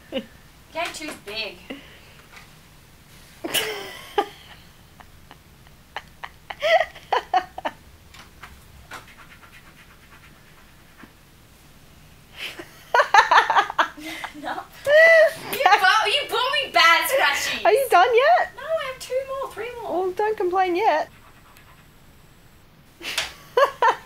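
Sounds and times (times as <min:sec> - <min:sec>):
woman laughing and panting: 0:03.4 - 0:07.7, 0:12.4 - 0:15.7.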